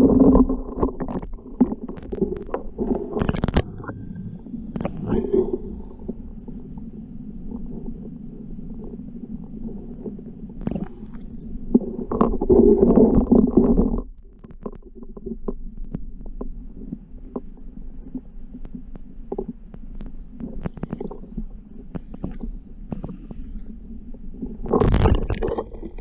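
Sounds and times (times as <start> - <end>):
sharp underwater clicks: 0.0 - 6.2, 18.1 - 23.6
muffled underwater creek rumble: 0.0 - 26.0.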